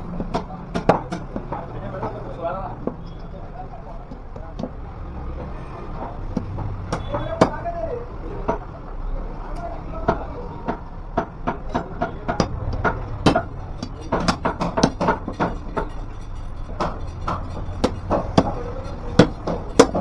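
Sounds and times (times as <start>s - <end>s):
knife chopping on wooden block: 10.1s - 15.9s, 16.8s - 20.0s.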